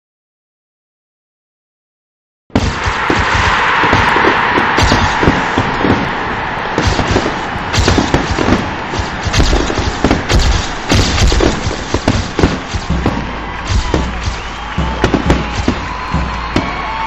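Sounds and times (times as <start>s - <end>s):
sharp bangs and thuds: 2.5s - 17.0s
steady hiss: 4.8s - 16.1s.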